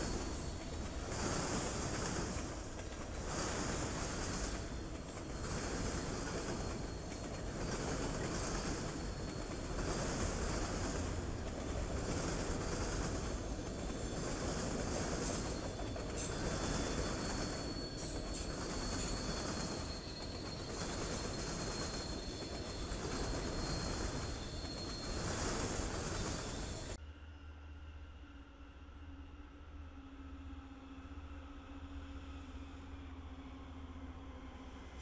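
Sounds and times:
freight train wheels rumbling: 0:00.0 - 0:27.0
high wheel squeal: 0:00.0 - 0:27.0.

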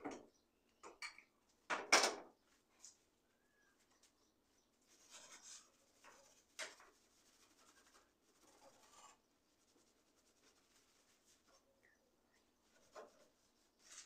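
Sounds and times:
sponge rubbing on metal panel: 0:04.9 - 0:11.6, 0:12.6 - 0:14.0.

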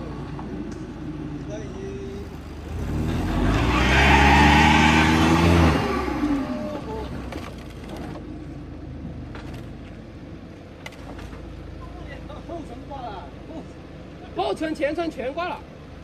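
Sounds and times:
car engine revving hard: 0:02.6 - 0:07.3.

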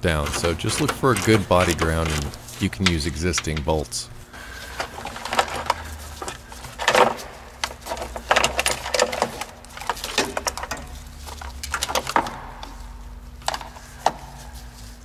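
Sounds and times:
hands handling wiring: 0:00.0 - 0:15.0
steady low hum: 0:00.0 - 0:15.0.

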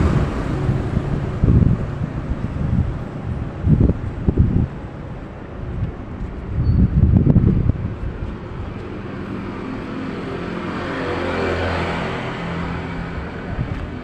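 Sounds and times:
vehicle passing by: 0:00.0 - 0:04.6, 0:07.2 - 0:14.0
wind buffeting microphone: 0:00.0 - 0:14.0.

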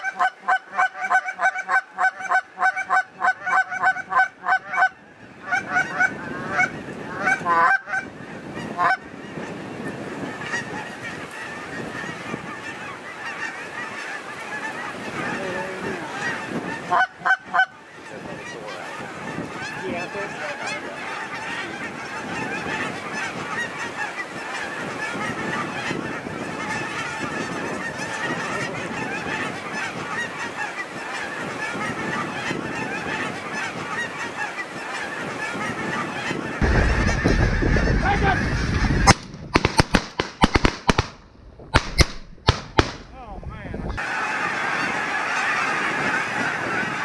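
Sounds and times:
geese honking: 0:00.0 - 0:41.1, 0:43.8 - 0:47.0
wind rumble on microphone: 0:02.9 - 0:40.0, 0:41.1 - 0:47.0
sharp loud cracks: 0:36.6 - 0:43.2.

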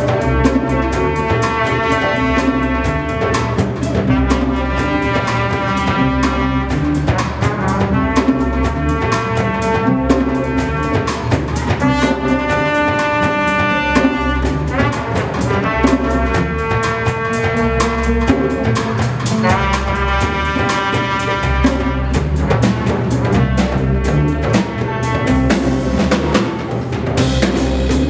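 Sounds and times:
trumpets playing long notes: 0:00.0 - 0:22.3
bass guitar: 0:00.0 - 0:28.0
drum kit and djembe beat: 0:00.0 - 0:28.0.

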